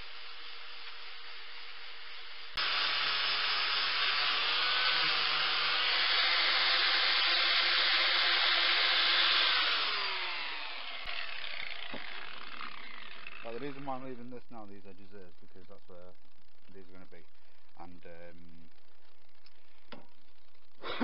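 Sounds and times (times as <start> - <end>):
electric power tool motor: 0.0 - 14.1.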